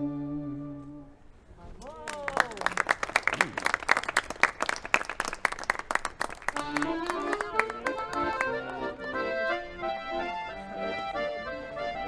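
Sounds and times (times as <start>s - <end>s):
instrumental music: 0.0s - 1.3s, 6.6s - 12.0s
crowd clapping: 1.8s - 9.1s.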